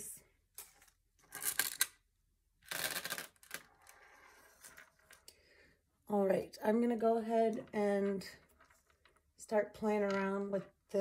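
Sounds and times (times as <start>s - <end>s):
wooden beads clicking and rattling: 2.6s - 5.3s.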